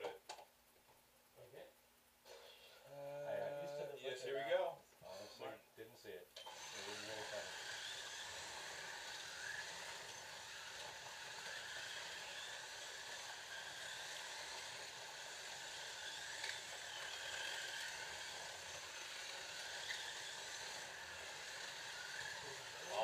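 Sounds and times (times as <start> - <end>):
slot car motors whining: 6.4 - 23.0.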